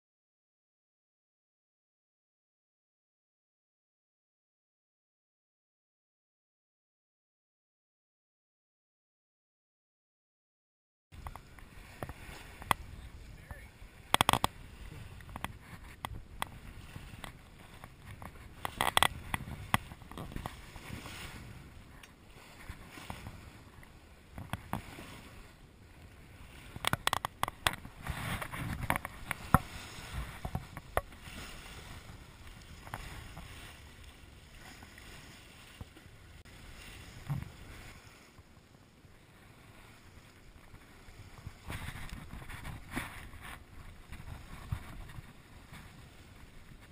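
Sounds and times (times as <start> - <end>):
water splashing against boat hull: 11.2 - 38.7, 39.7 - 46.9.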